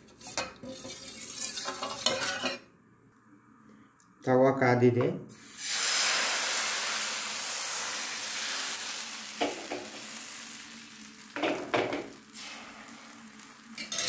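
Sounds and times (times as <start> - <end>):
batter sizzling on a griddle: 5.3 - 14.0.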